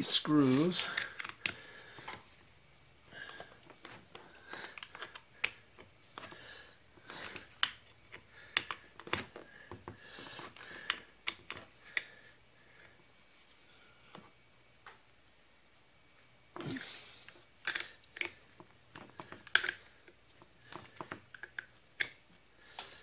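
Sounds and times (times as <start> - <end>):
chainsaw parts clicking and tapping: 7.2 - 9.2, 17.6 - 18.4, 19.0 - 20.2.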